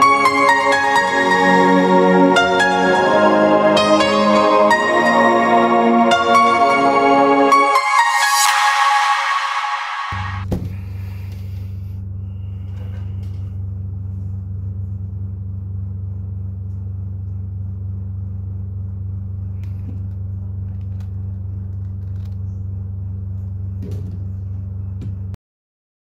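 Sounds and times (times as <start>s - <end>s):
steady low hum: 10.2s - 25.3s.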